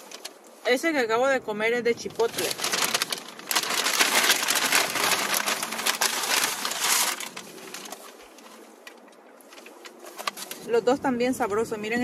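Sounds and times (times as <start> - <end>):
chip bag crinkling: 2.0 - 10.7.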